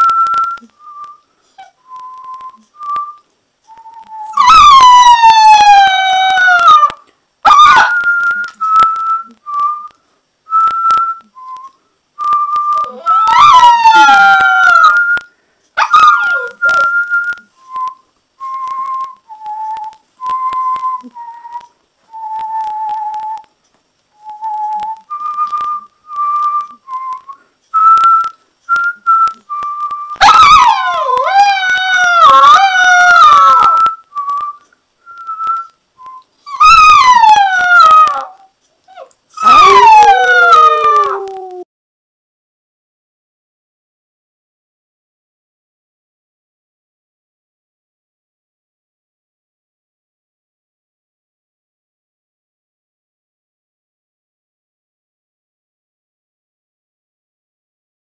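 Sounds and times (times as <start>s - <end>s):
person whistling a tune: 0.0s - 4.4s, 7.8s - 13.4s, 16.2s - 23.4s, 24.2s - 30.2s, 33.4s - 36.7s
puppy howling: 4.0s - 8.1s, 12.8s - 15.2s, 15.8s - 17.0s, 30.2s - 34.0s, 36.4s - 41.7s.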